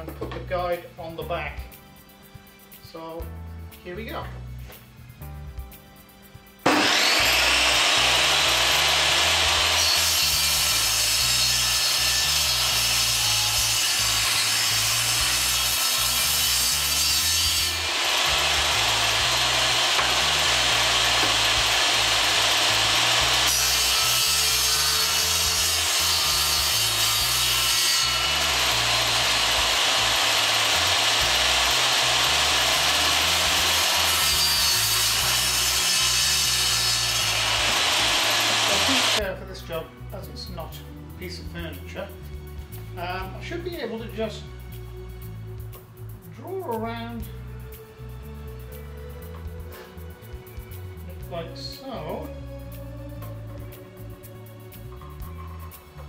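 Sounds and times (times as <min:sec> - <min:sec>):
table saw cutting wood: 0:06.6 - 0:39.2.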